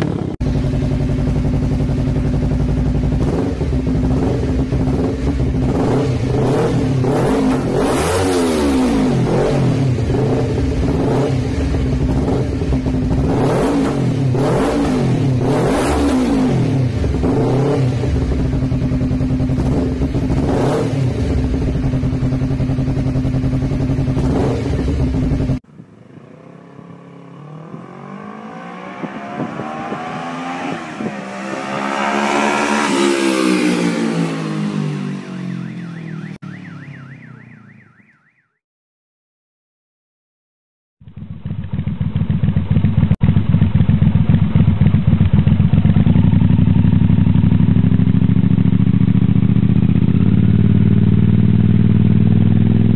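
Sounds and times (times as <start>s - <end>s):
motorcycle accelerating past: 0.0s - 35.6s
motorcycle engine idling and revving: 0.0s - 38.0s, 41.0s - 52.9s.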